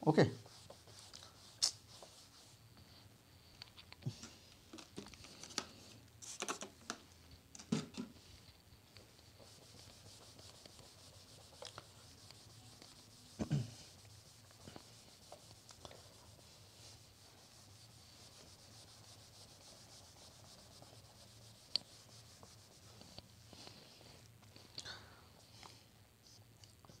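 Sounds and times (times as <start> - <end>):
duster scrubbing whiteboard: 0.4 - 2.6, 9.0 - 24.0.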